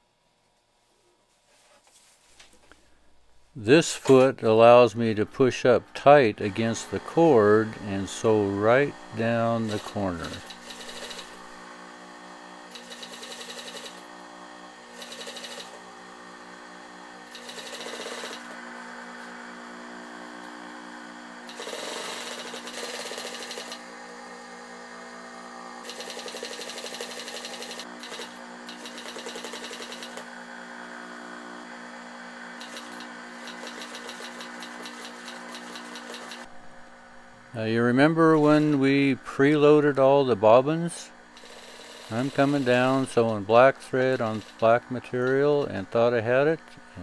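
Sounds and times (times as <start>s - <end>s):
sewing machine stitching: 6.4s - 11.6s, 12.6s - 15.9s, 17.2s - 18.6s, 21.4s - 23.9s, 25.8s - 30.3s, 32.6s - 36.5s, 41.4s - 45.8s.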